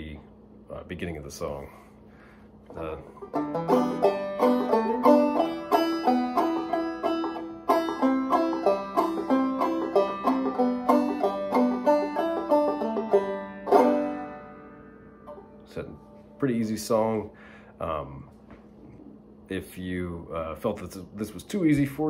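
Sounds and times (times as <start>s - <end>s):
banjo plucking and strumming: 2.8s - 16.3s.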